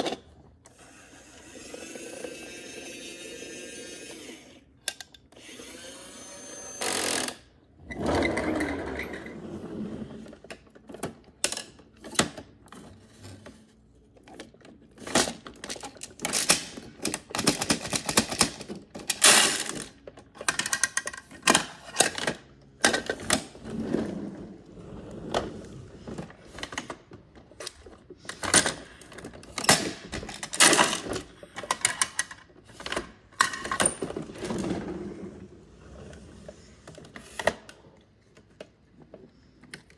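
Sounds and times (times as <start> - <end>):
plastic toys clicking and clattering: 10.2 - 23.8, 26.0 - 34.8.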